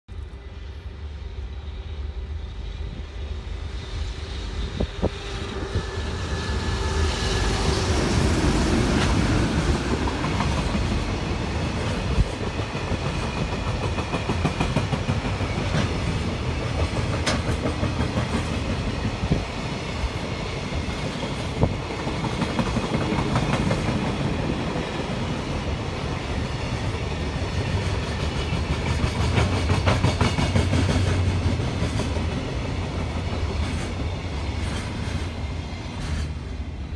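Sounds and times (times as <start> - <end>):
freight train rolling past: 0.1 - 36.9
wheels clacking over rail joints: 8.8 - 19.3.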